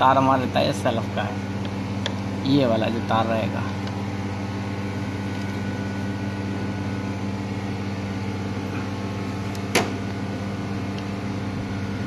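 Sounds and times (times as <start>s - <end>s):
mechanical hum: 0.0s - 12.0s
sharp click: 9.5s - 10.2s.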